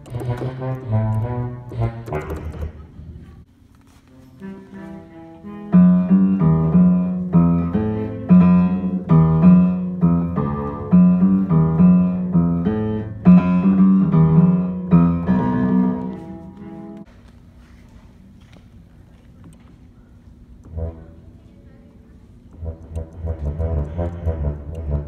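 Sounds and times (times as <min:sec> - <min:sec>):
piano chords: 0:00.0 - 0:03.3, 0:04.1 - 0:17.1, 0:22.6 - 0:25.0.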